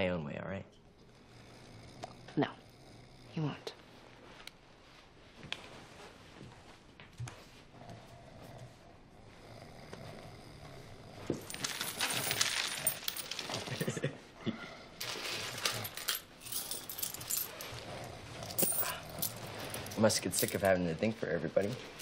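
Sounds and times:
coins clinking: 0:11.3 - 0:14.0, 0:15.0 - 0:17.8, 0:18.4 - 0:20.7
clothes rustling: 0:11.4 - 0:14.0, 0:15.0 - 0:22.0.

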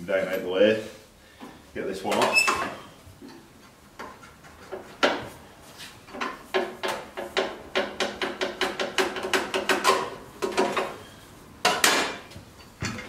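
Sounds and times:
exhaust pipe knocking metallically: 0:06.5 - 0:10.2.

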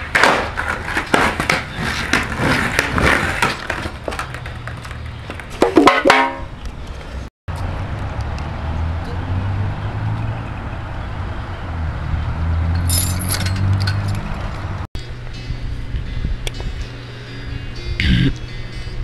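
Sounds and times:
skateboard clattering on concrete: 0:00.0 - 0:06.4.

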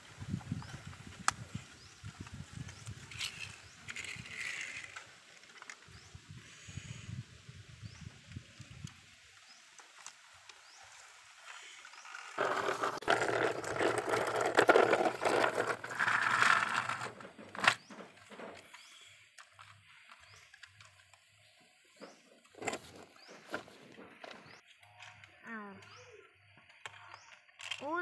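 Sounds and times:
toy truck rattling on concrete: 0:02.2 - 0:05.9, 0:11.6 - 0:21.0
faint bird chirps: 0:24.4 - 0:28.0.

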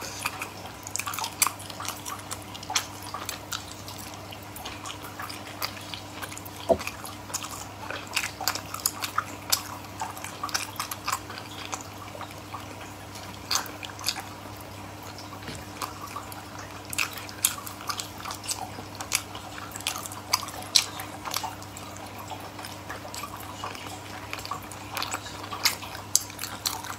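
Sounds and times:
wet chewing and smacking: 0:00.0 - 0:26.9.

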